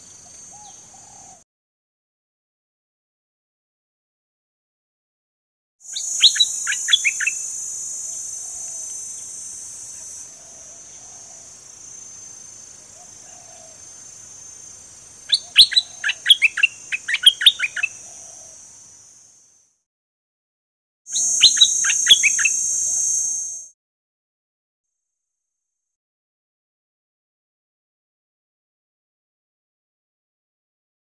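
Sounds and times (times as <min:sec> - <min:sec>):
high insect drone: 0:05.8 - 0:19.8, 0:21.1 - 0:23.7
bird singing quick notes: 0:05.9 - 0:07.6, 0:21.2 - 0:23.6.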